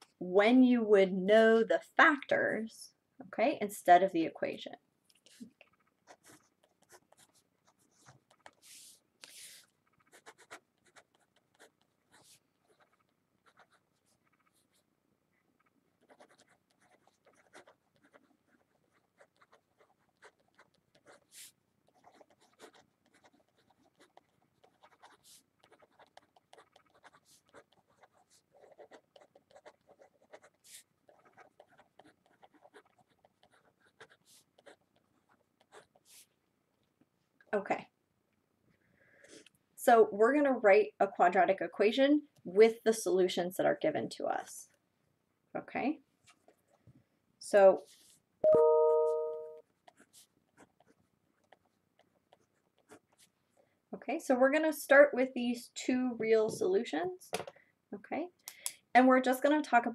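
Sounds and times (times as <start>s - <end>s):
pen writing on paper: 6.1s - 14.8s, 16.0s - 36.2s.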